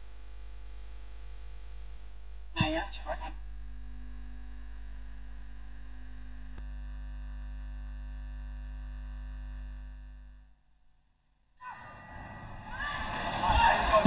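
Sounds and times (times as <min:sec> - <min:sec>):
electrical mains hum: 0:00.0 - 0:11.1
high bright buzz: 0:03.7 - 0:10.6.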